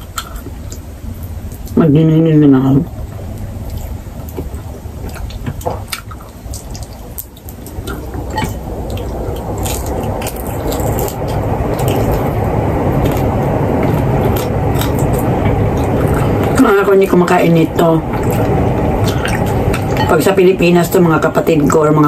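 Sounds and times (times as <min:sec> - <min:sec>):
wet chewing and smacking: 0:03.0 - 0:16.8, 0:18.1 - 0:20.2.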